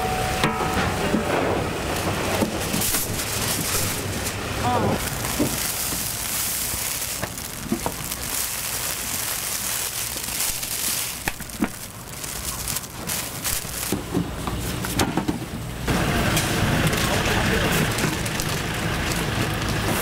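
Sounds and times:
plastic bag crinkling: 2.5s - 15.0s, 16.8s - 20.0s
granules pouring into metal tray: 5.0s - 14.0s.

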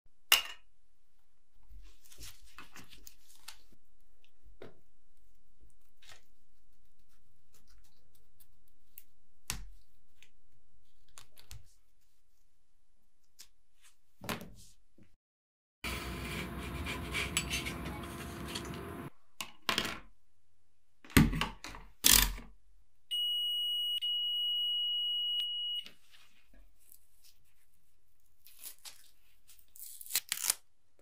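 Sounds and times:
multimeter high beep: 23.1s - 25.9s.

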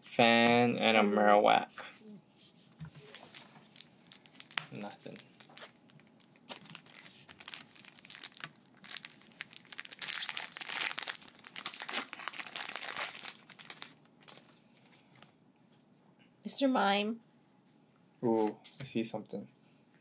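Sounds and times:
wrapper crinkling: 3.0s - 15.3s
foil pack tearing open: 3.2s - 14.4s.

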